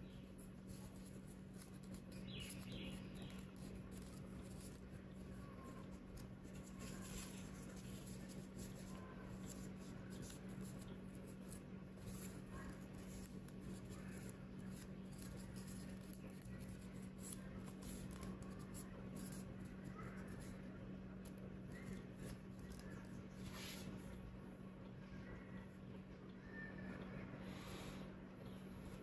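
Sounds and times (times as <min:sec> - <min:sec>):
steady low hum: 0:00.0 - 0:29.0
paper rustling and crinkling: 0:00.7 - 0:20.5.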